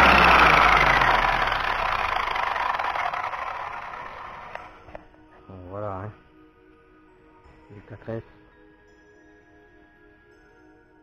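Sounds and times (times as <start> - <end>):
electric motor whir: 0.0 - 4.8.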